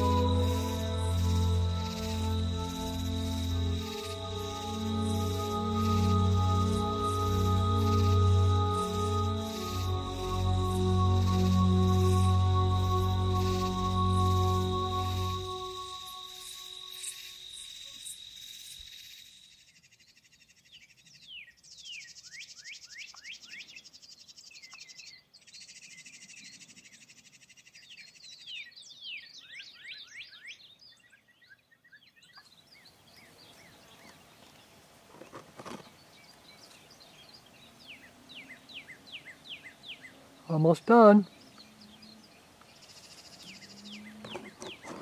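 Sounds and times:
high insect trill: 0:00.0 - 0:20.0
bird chirping: 0:00.0 - 0:45.0.

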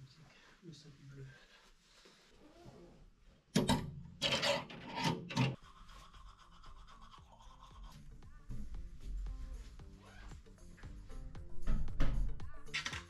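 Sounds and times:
faint background music: 0:05.0 - 0:13.0
toothbrush scrubbing teeth: 0:05.6 - 0:08.3.

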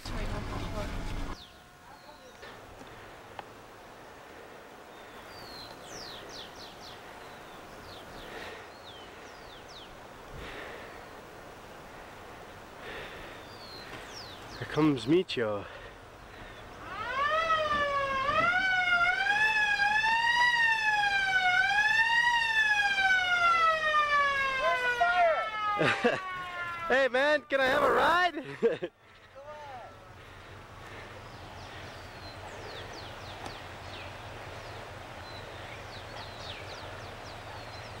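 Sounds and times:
small birds chirping: 0:01.3 - 0:16.9, 0:28.7 - 0:38.0
siren-like wail: 0:16.8 - 0:27.0.

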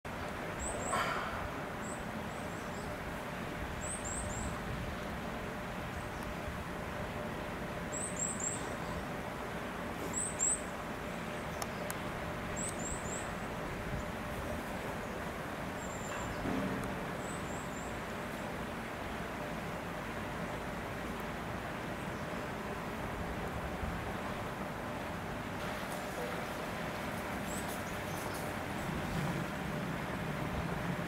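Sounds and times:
steady background hiss: 0:00.1 - 0:31.0
small birds chirping: 0:07.4 - 0:09.2, 0:10.0 - 0:16.5, 0:27.4 - 0:29.0.

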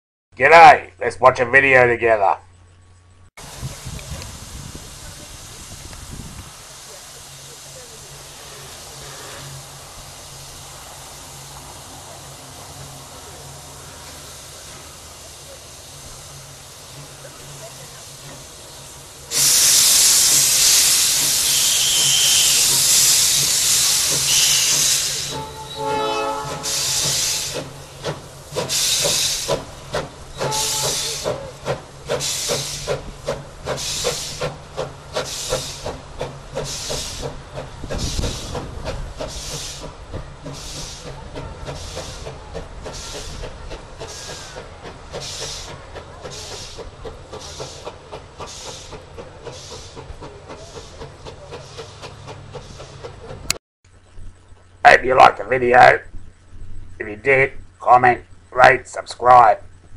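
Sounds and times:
steam hissing: 0:03.4 - 0:53.6
steam locomotive chuffing: 0:03.4 - 0:53.6
steam whistle blast: 0:19.3 - 0:27.6, 0:30.3 - 0:31.4.

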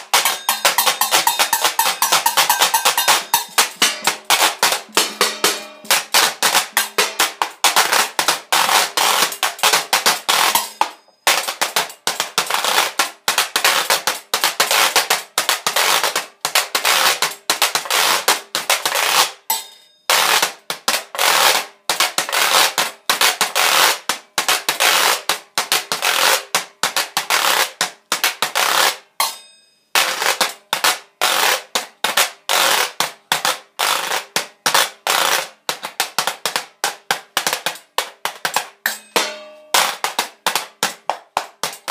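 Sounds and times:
washboard percussion strokes: 0:00.0 - 0:11.6, 0:38.9 - 0:40.1.

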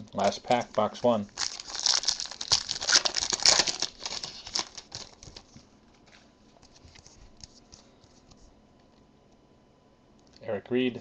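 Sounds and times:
foil wrapper tearing and crinkling: 0:00.2 - 0:05.5.

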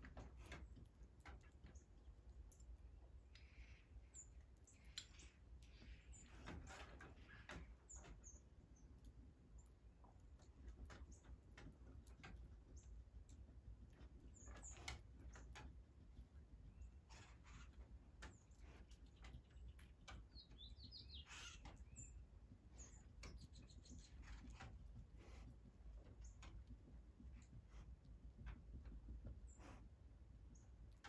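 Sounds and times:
bird chip calls: 0:19.1 - 0:24.4.

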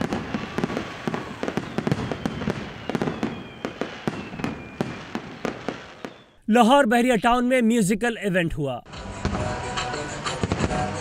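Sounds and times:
fireworks bangs and crackles: 0:00.0 - 0:06.4, 0:09.1 - 0:11.0
faint falling whistle: 0:00.5 - 0:05.0, 0:05.8 - 0:06.4.

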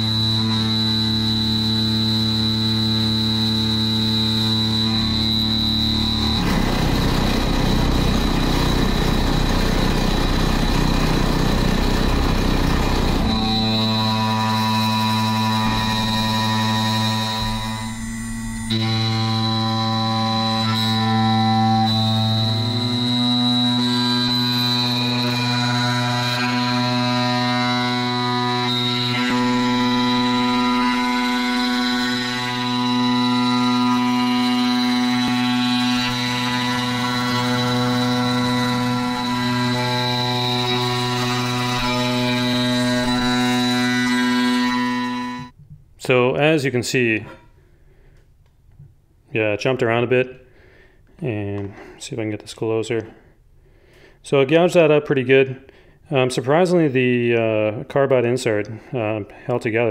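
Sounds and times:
high spindle whine: 0:00.0 - 0:45.6
router cutting steel: 0:00.0 - 0:45.6.

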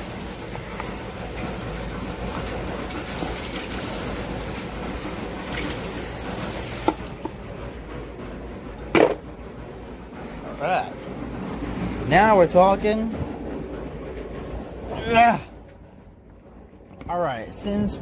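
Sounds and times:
tap water running into sink: 0:02.5 - 0:04.5, 0:05.1 - 0:07.2.

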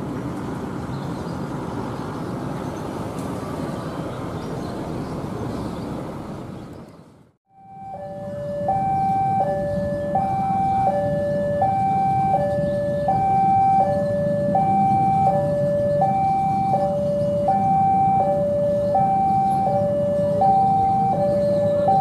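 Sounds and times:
diesel locomotive rumble: 0:00.0 - 0:22.0
level crossing alarm two tones: 0:07.5 - 0:22.0.

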